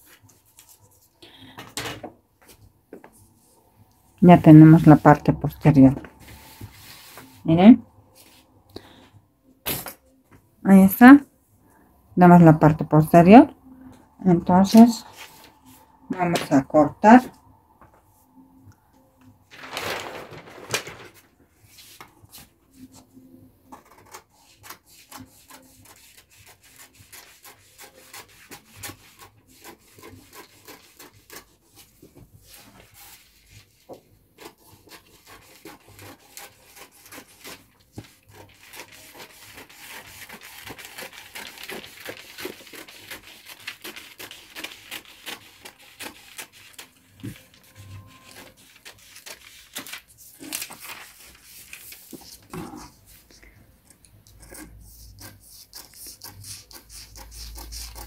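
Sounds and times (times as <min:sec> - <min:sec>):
paper sheet rustling: 0:05.9 - 0:07.4, 0:19.4 - 0:23.0, 0:34.9 - 0:53.4
scissors cutting paper: 0:23.8 - 0:31.9, 0:34.4 - 0:47.6, 0:48.2 - 0:53.0, 0:54.2 - 0:58.0.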